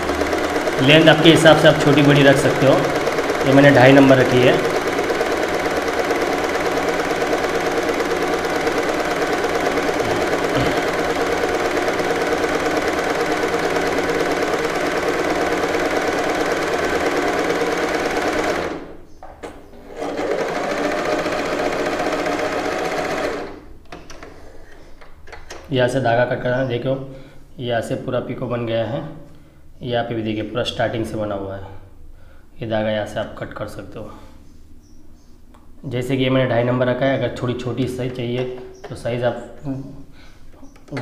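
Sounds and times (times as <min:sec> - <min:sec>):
electric sewing machine running: 0:00.0 - 0:19.0, 0:19.8 - 0:23.7.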